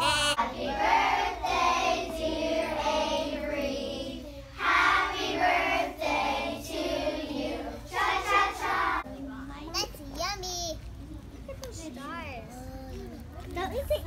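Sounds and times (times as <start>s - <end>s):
young children singing: 0.0s - 9.0s.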